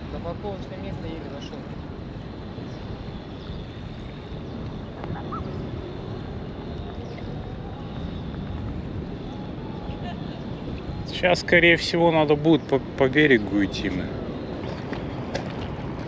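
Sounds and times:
small waves lapping at shore: 13.8s - 16.0s.

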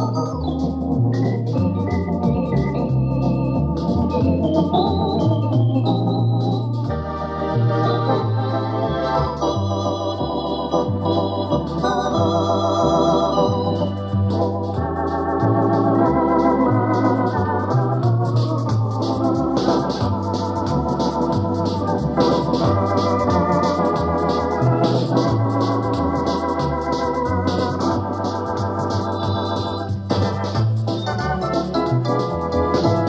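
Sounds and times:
electronic organ tune: 0.0s - 33.0s
fast high percussion ticking: 16.8s - 33.0s.

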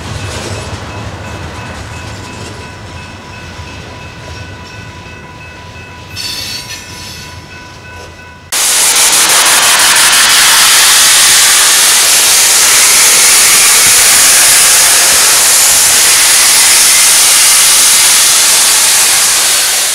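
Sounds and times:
steam locomotive venting steam: 6.1s - 19.9s.

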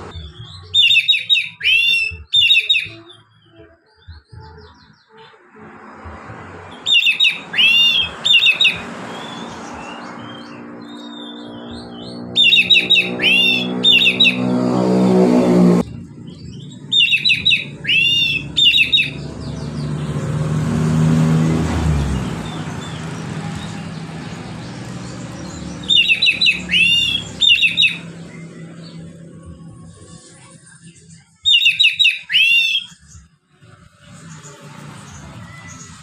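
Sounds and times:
vehicle passing: 0.0s - 0.3s, 5.3s - 31.2s, 33.2s - 36.0s
bird singing: 0.0s - 36.0s
low engine noise: 5.5s - 31.2s, 33.4s - 36.0s.

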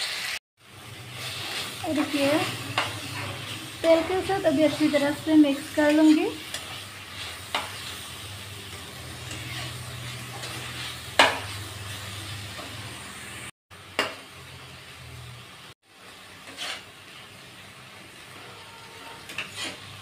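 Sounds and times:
cabbage sizzling in oil: 0.0s - 20.0s
spatula scraping pan: 1.0s - 13.0s, 16.0s - 17.3s, 18.3s - 20.0s.

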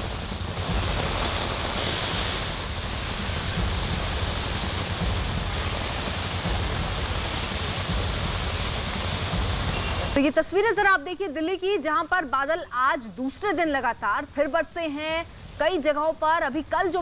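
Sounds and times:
heavy rain falling on road: 0.0s - 10.2s.

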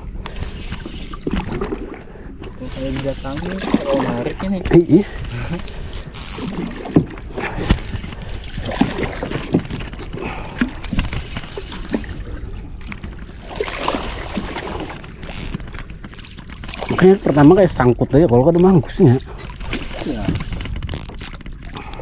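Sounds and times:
water sloshing around a boat: 0.0s - 22.0s
knocks and clicks: 15.2s - 15.6s, 20.9s - 21.1s.

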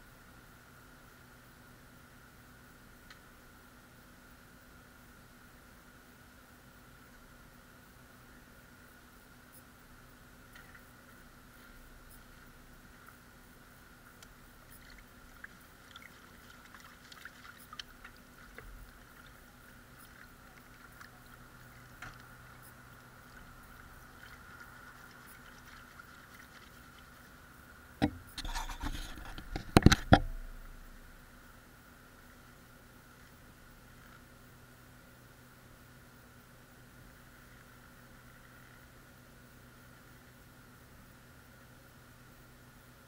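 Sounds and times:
water splashing in a pan: 14.8s - 21.9s
small knocks: 28.0s - 30.5s.

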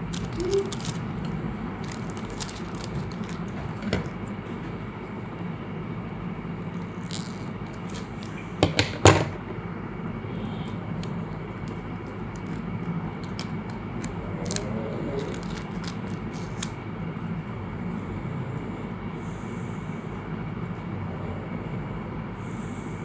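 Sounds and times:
plastic film crinkling: 0.0s - 4.2s, 6.8s - 8.4s, 10.9s - 16.8s
low background rumble: 0.0s - 8.6s, 9.4s - 23.0s.

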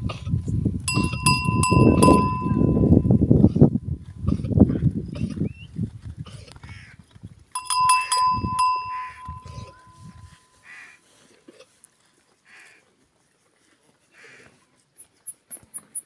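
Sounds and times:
metal bell clanking: 0.9s - 3.1s, 7.6s - 10.6s
goats and sheep bleating: 8.7s - 10.0s.

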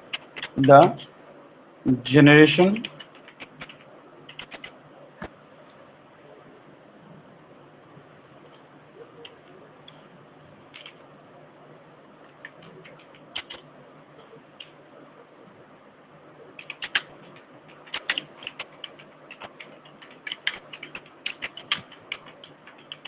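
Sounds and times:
computer keyboard typing: 0.1s - 1.0s, 2.6s - 4.8s, 10.7s - 11.0s, 12.3s - 13.6s, 16.6s - 23.0s.

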